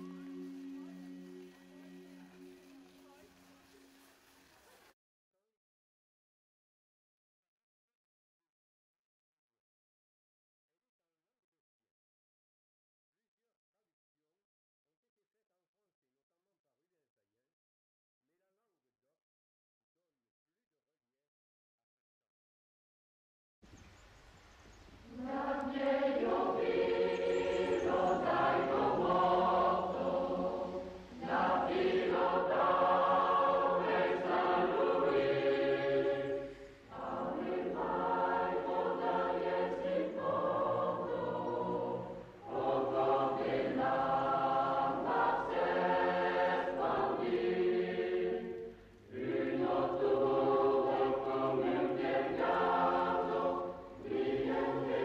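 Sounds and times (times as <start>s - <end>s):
choir singing long held phrases: 0.0s - 4.2s, 25.0s - 55.0s.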